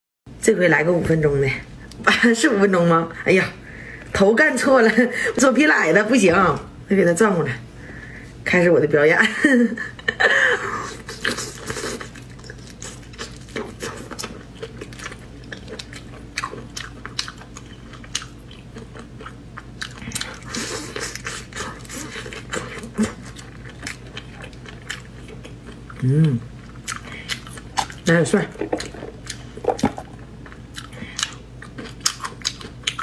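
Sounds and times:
faint steady hum: 0.3 - 33.0
chewing and crunching: 11.0 - 33.0.

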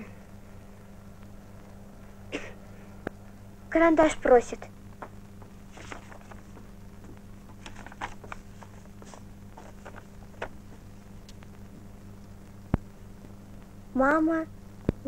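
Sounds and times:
steady low hum: 0.0 - 15.0
small paper clicks: 5.0 - 6.7, 7.4 - 10.6
paper rustling: 5.0 - 10.9.

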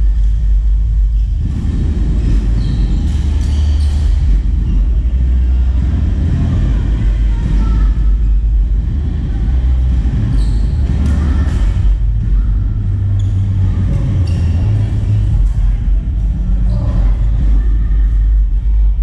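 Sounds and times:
distant voices: 0.0 - 19.0
low rumble: 0.0 - 19.0
shoes squeaking on court: 2.4 - 4.3, 13.2 - 14.9.

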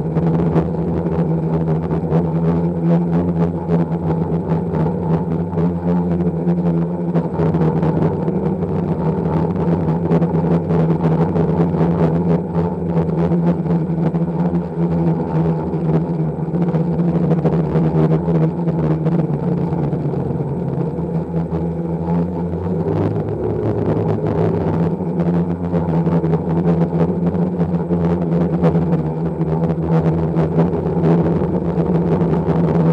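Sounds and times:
drone propellers humming: 0.0 - 32.9.

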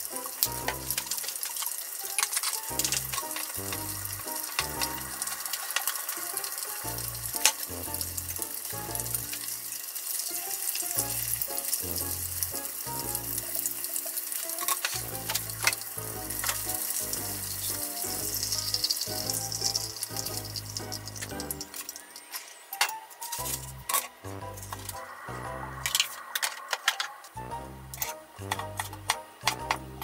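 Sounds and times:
oil sizzling and crackling: 0.0 - 30.0
background music with bass: 23.4 - 26.0, 27.4 - 30.0.

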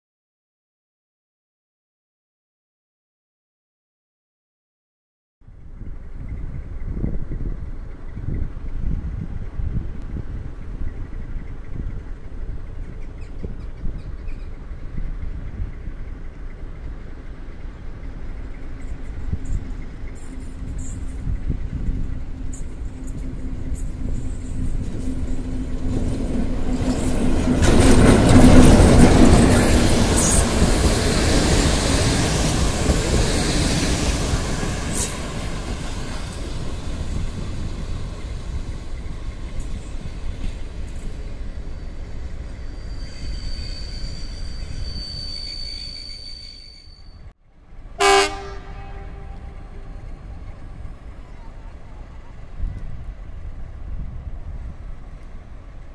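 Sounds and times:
diesel locomotive passing: 5.6 - 45.6, 47.5 - 55.9
wheels or brakes squealing: 18.4 - 26.1, 29.3 - 40.2, 42.3 - 47.4
train horn blast: 48.0 - 49.9.

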